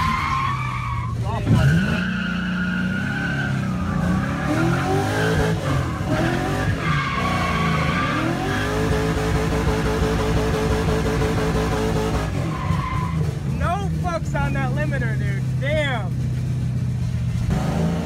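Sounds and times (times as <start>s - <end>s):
tyres squealing: 0.0s - 8.8s, 12.3s - 15.2s
car engine revving: 0.0s - 18.0s.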